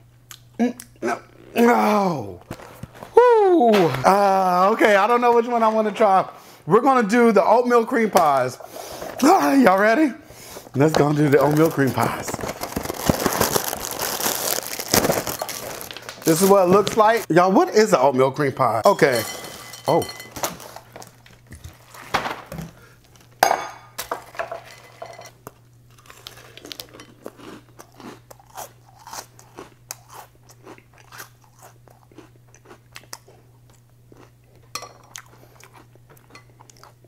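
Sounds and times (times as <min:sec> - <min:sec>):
person chewing crunchy cereal: 0:10.4 - 0:17.3, 0:25.9 - 0:37.0.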